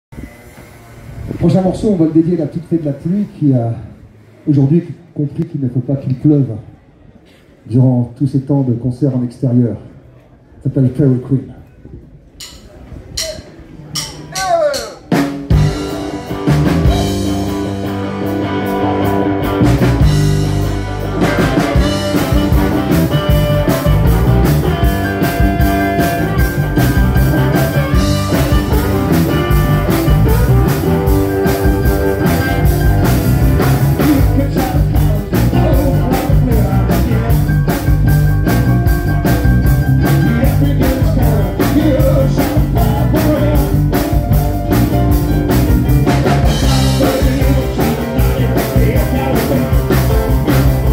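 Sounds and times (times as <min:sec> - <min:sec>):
rock band playing: 0:13.2 - 0:50.9
drum beat: 0:19.7 - 0:50.9.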